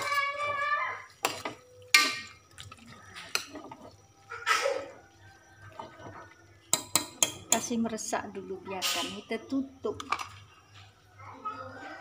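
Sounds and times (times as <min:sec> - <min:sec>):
metal spatula clinking on pot: 0:01.2 - 0:02.4, 0:06.7 - 0:07.7.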